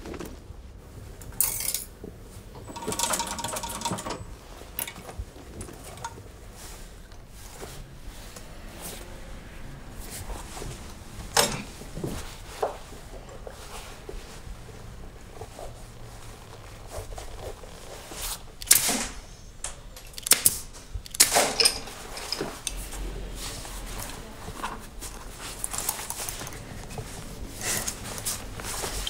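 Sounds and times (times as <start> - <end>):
pneumatic stapler shots: 18.6 - 21.9.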